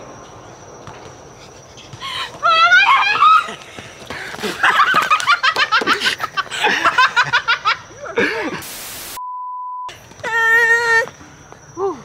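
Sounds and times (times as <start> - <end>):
people laughing: 3.2 - 8.6
static hiss: 8.6 - 9.2
electronic beep: 9.0 - 9.9.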